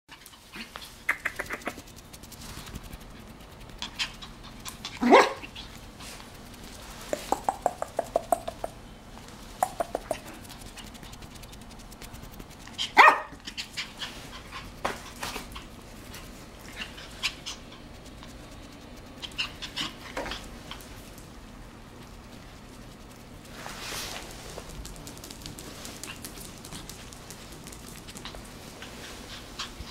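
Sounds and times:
puppy yapping: 3.9 - 5.8, 12.7 - 14.7.

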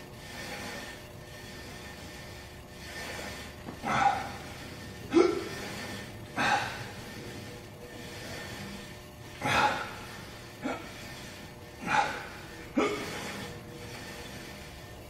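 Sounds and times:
man breathing hard: 2.8 - 8.8, 9.4 - 14.6.

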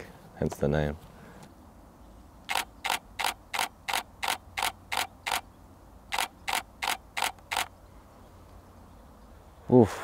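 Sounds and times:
camera shutter firing: 2.5 - 5.4, 6.1 - 7.7.

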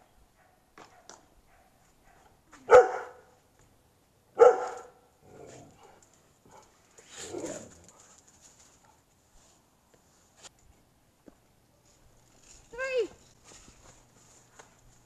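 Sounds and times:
dog barking: 0.4 - 3.3, 4.4 - 5.0.

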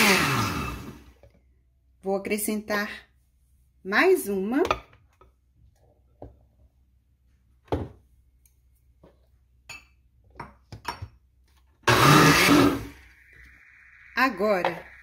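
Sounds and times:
blender running: 0.0 - 1.1, 11.9 - 13.2.

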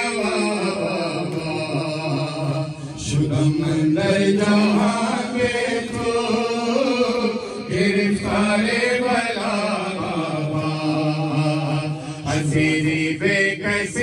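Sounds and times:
men chanting a lament: 0.0 - 14.0.

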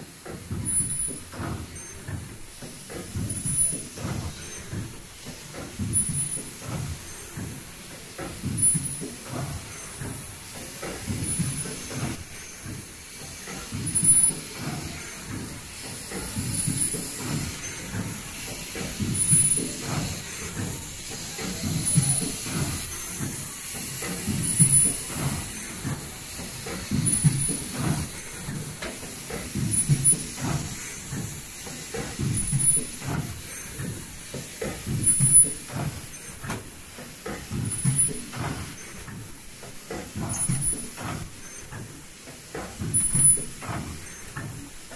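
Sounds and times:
machine knocks: 0.0 - 44.9
machine low rumble: 0.0 - 44.9
short high-pitched tones: 20.1 - 21.4, 43.9 - 44.9.

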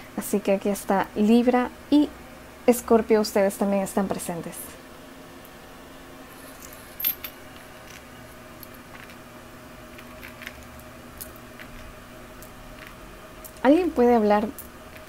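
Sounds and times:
metal charms clinking: 6.4 - 9.2.

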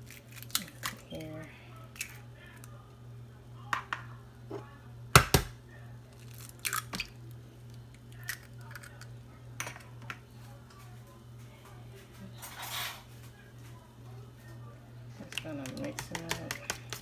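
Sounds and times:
low steady hum: 0.0 - 17.0
egg shell tapping: 15.3 - 17.0.

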